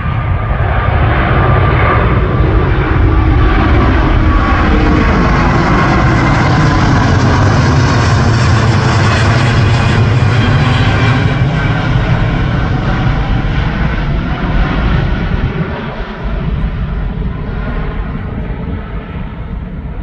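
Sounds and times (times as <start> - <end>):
jet airliner passing overhead: 0.0 - 20.0.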